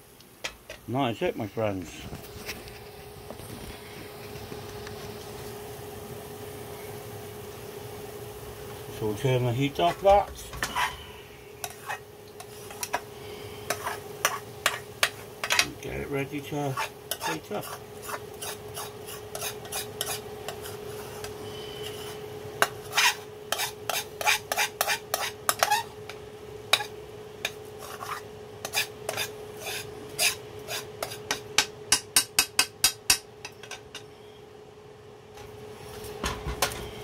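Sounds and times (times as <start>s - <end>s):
spoon scraping a metal pan: 11.6s - 13.0s, 13.6s - 15.7s, 16.7s - 25.9s, 26.7s - 31.4s.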